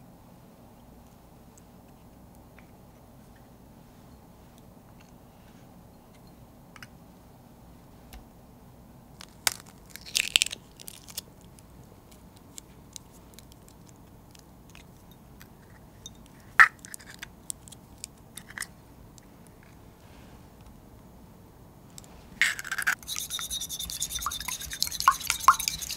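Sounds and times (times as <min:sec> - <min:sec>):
eggshells cracking: 0:09.2 - 0:11.2.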